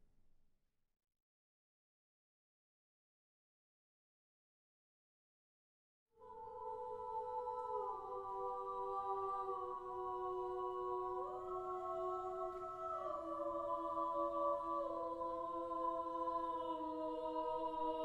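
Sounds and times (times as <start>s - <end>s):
choir singing a cappella: 6.2s - 18.0s.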